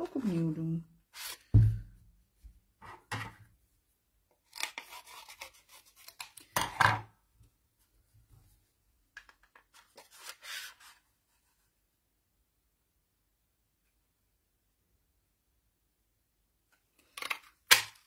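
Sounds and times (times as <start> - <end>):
knock on desk: 1.6 - 1.9.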